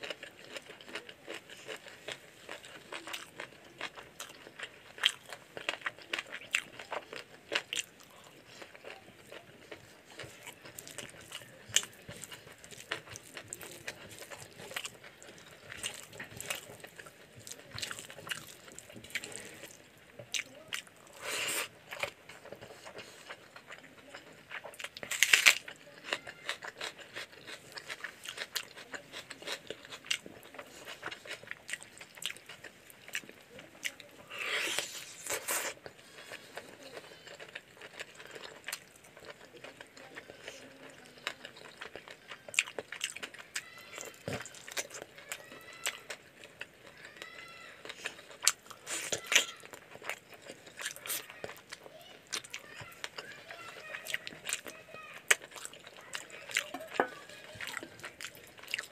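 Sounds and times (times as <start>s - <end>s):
wet chewing and lip smacking: 0.0s - 58.9s
crunchy bites of raw onion: 25.1s - 30.2s, 34.3s - 35.8s.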